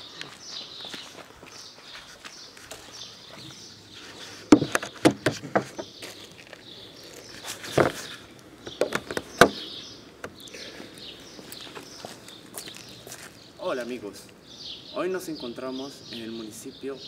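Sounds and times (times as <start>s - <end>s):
sharp clicks and knocks: 4.5s - 5.9s, 8.6s - 9.6s.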